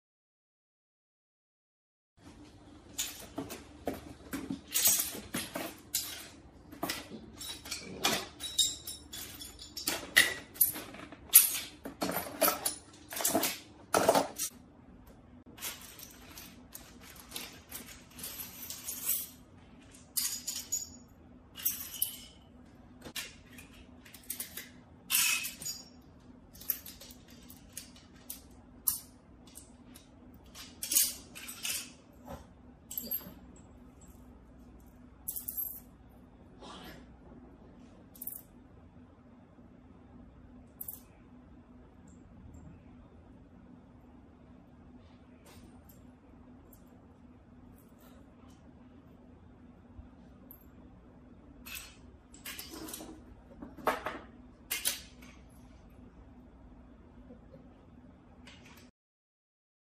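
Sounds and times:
faint steady hum: 2.2s - 58.9s
plastic and metal parts clattering: 2.9s - 14.5s, 15.5s - 21.0s, 26.5s - 33.4s
small metal nuts clinking: 4.7s - 14.5s, 15.6s - 22.5s, 23.5s - 32.0s.

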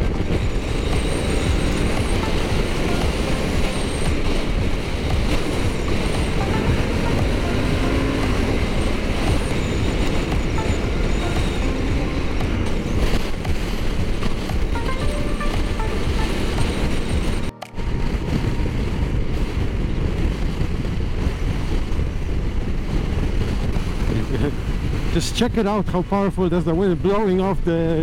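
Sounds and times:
motorcycle running: 0.0s - 25.1s
wind buffeting camera: 16.7s - 28.0s.

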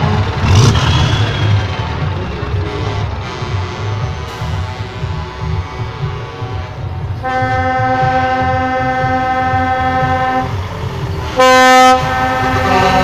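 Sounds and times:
diesel truck engines rumbling: 0.0s - 13.0s
truck air horn blasts: 2.6s - 10.6s, 11.3s - 13.0s.

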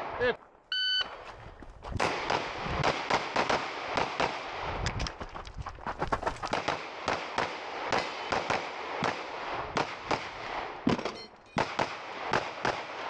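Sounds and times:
pistol firing rapid shots: 2.1s - 4.6s, 6.5s - 11.0s, 11.6s - 13.0s.

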